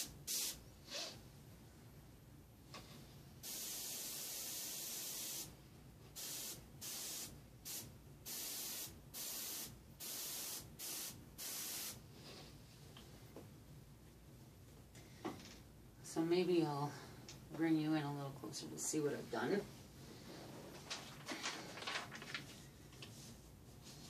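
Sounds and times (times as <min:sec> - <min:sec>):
airbrush spraying hiss: 0:00.0 - 0:01.2, 0:03.4 - 0:05.5, 0:06.1 - 0:12.1.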